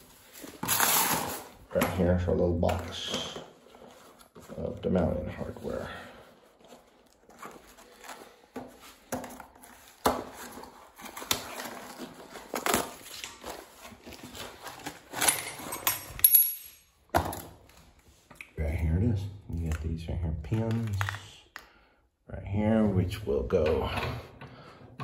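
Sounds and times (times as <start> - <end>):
packaging rustling: 2.6 - 16.2.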